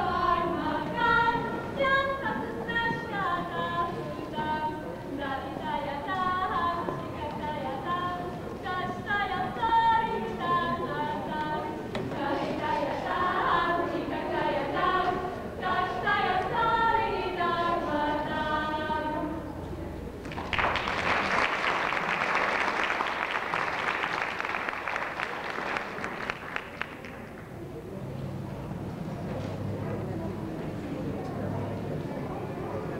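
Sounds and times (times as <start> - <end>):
group singing in harmony: 0.0 - 19.6
audience applause: 20.2 - 27.6.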